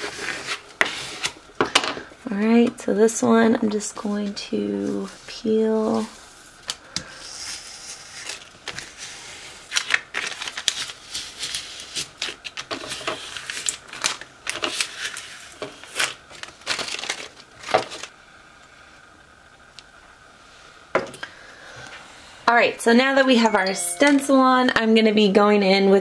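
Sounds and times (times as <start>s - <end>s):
tape peeling with crackling: 7.8s - 18.1s.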